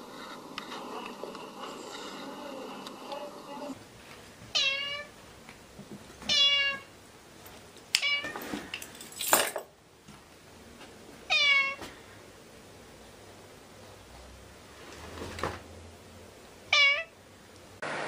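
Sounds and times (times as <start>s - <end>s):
cat meowing: 4.5s - 5.1s, 6.3s - 6.9s, 11.3s - 11.8s, 16.7s - 17.2s.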